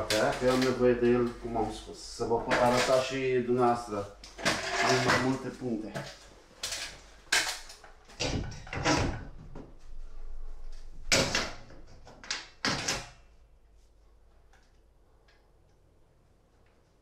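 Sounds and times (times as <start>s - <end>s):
knocks and clatter of handled device: 4.4s - 9.6s.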